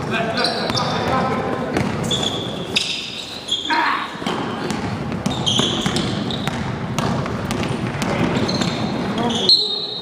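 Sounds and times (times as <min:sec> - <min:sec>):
players' voices: 0:00.0 - 0:06.2, 0:07.7 - 0:10.0
sneakers squeaking on court floor: 0:00.0 - 0:10.0
basketball bouncing: 0:00.6 - 0:02.1, 0:04.2 - 0:09.2.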